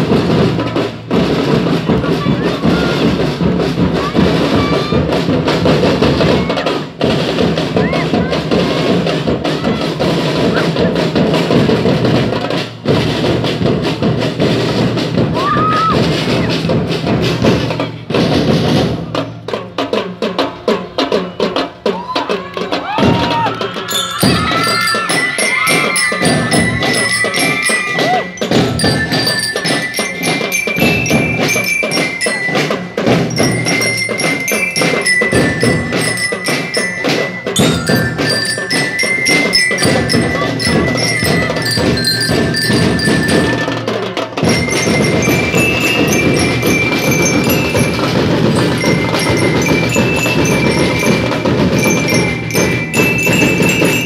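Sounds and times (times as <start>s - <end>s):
marching drums: 0.0s - 54.0s
bell lyres playing melody: 23.8s - 54.0s.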